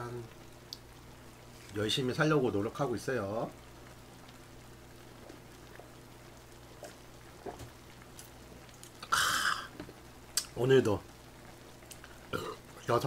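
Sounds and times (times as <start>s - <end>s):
man gulping a drink: 6.7s - 10.6s, 11.8s - 12.6s
breathy exhale: 9.1s - 9.7s.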